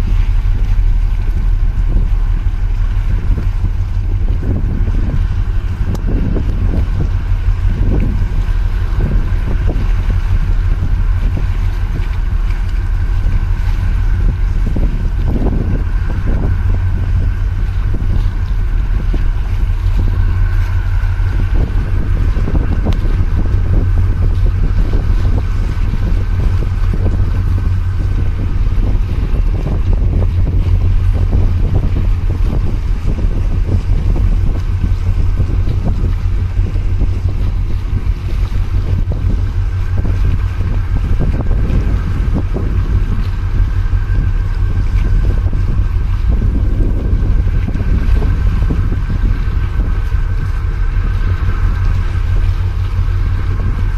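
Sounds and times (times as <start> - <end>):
small waves splashing on concrete: 0.0 - 53.9
wind buffeting microphone: 0.0 - 53.9.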